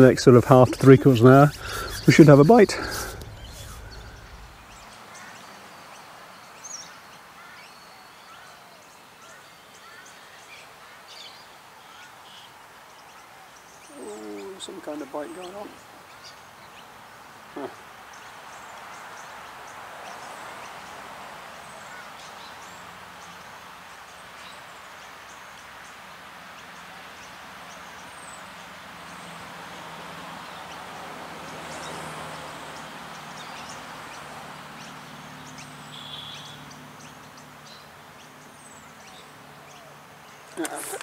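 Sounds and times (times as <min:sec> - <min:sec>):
low steady hum: 0:00.0 - 0:04.9
steady background rush: 0:00.0 - 0:05.0
faint bird chirps: 0:00.5 - 0:05.8, 0:35.6 - 0:37.9.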